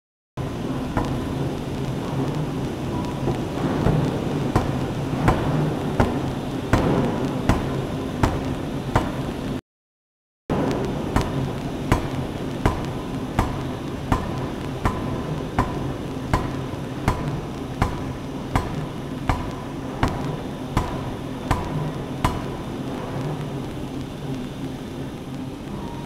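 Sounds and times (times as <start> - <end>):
forge shop din and hum: 0.4 - 9.6, 10.5 - 26.0
forging hammer striking metal: 3.6 - 9.2, 10.8 - 23.2.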